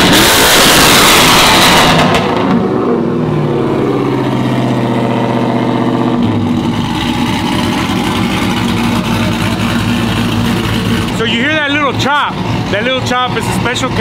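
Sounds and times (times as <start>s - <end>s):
engine idling with choppy lope: 6.1s - 14.0s.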